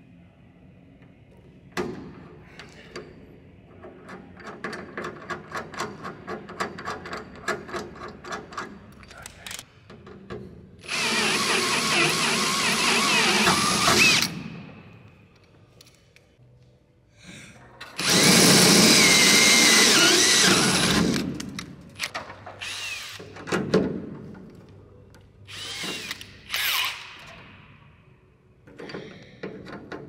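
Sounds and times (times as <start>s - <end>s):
cordless drill drilling into metal: 10.9s - 14.4s, 18.0s - 21.2s.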